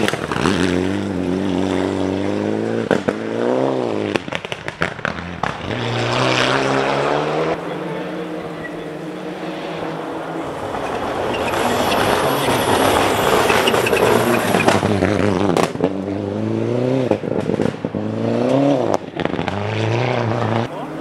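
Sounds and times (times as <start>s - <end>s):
rally car engine at full throttle: 0.0s - 21.0s
engine rev blips: 6.6s - 15.7s
exhaust cracks: 10.4s - 16.0s.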